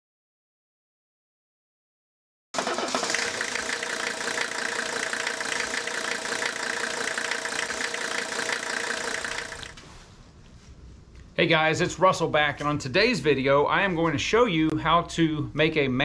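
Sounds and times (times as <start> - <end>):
engine idling with knocking clatter: 2.6 - 9.7.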